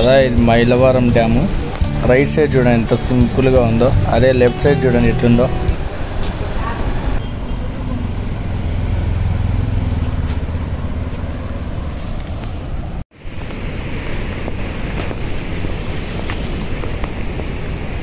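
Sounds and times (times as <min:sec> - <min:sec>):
wind rumbling on microphone: 0:08.3 - 0:18.0
water rushing down river: 0:13.1 - 0:18.0.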